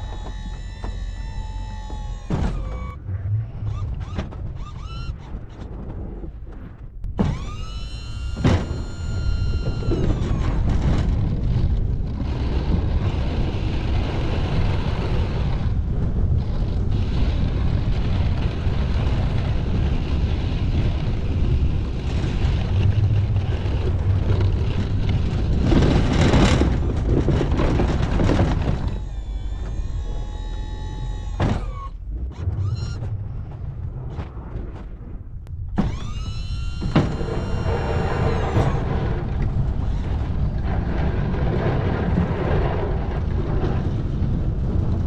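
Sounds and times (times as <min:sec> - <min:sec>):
hydraulic pump whine: 0:00.0 - 0:05.3, 0:07.2 - 0:11.1, 0:28.3 - 0:33.2, 0:35.7 - 0:40.1
truck engine rumbling: 0:00.0 - 0:45.0
plow blade scraping snow: 0:07.4 - 0:34.8, 0:35.8 - 0:45.0.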